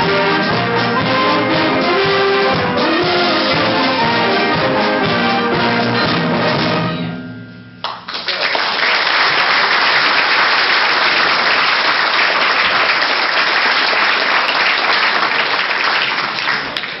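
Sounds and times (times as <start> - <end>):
audience applauding: 7.8 - 17.0.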